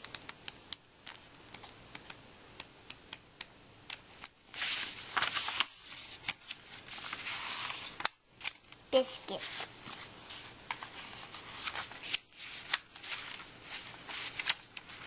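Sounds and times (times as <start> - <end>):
paper ticks and crinkles: 0.0 - 2.2, 3.0 - 8.8, 9.4 - 15.0
page turning rustle: 4.2 - 8.8, 9.4 - 15.0.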